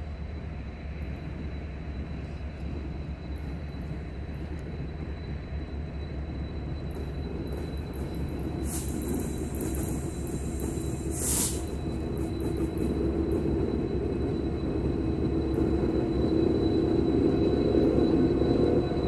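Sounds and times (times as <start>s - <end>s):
diesel locomotive engine rumble: 0.0s - 19.0s
rush of hissing: 8.6s - 11.8s.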